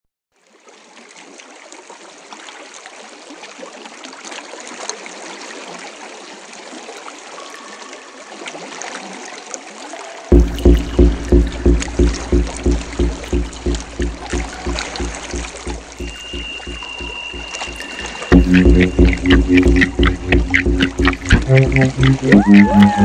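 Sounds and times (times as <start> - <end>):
music with pulsing bass beat: 10.3 - 23.0.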